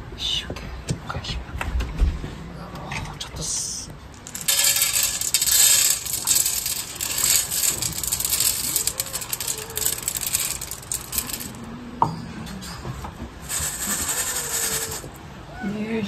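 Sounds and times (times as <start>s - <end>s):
kibble rattling on metal tray: 4.1s - 11.7s, 13.4s - 15.2s.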